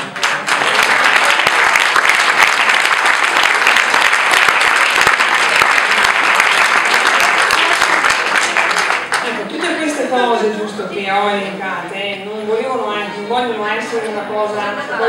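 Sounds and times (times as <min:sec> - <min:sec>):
audience applause: 0:00.0 - 0:10.0.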